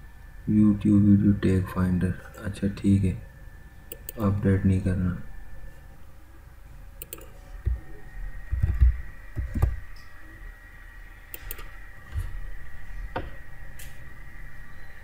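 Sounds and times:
faint high-pitched electrical whine: 0.0 - 15.0
computer mouse clicks: 3.9 - 4.2, 7.0 - 7.8, 11.3 - 11.7.

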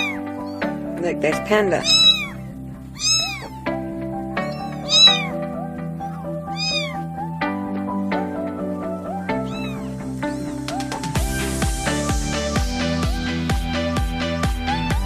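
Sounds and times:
kittens mewing: 0.0 - 0.8, 1.7 - 7.6, 9.1 - 10.7
background music with beat: 3.5 - 15.0.

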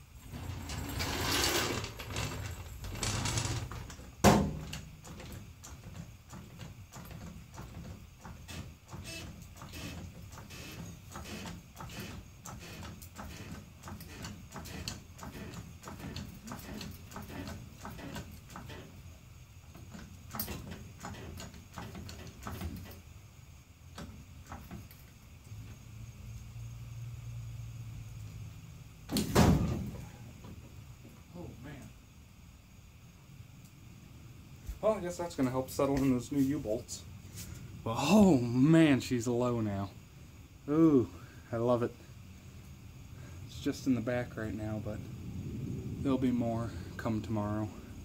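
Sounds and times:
floor jack clicking and creaking: 0.2 - 18.9, 19.7 - 23.0.

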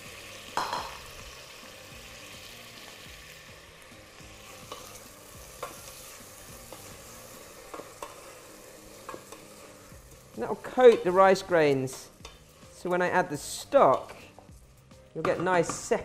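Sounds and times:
rice sizzling in fat: 0.0 - 16.0
spoon knocking against pot: 0.6 - 1.0.

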